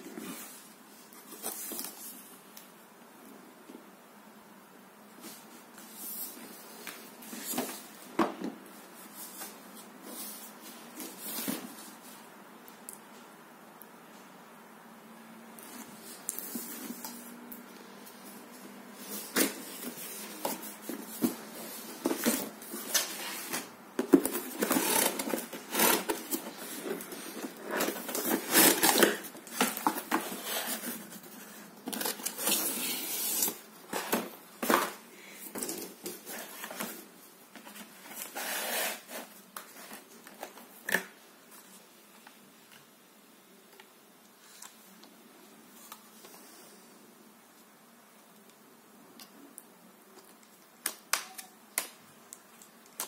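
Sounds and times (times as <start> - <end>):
cardboard and plastic rustling: 5.2 - 12.3, 18.2 - 42.3.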